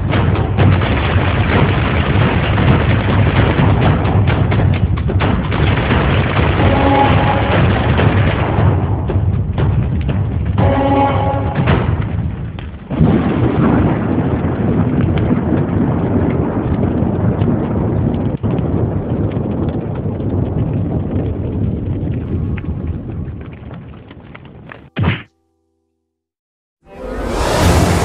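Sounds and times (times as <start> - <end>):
thunder rumbling: 5.8 - 24.9.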